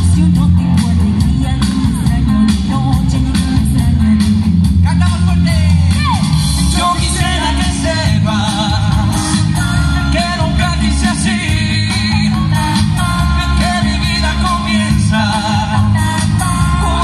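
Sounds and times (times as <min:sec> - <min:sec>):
bass-heavy amplified accompaniment: 0:00.0 - 0:17.0
singers with vibrato voices: 0:05.3 - 0:17.0.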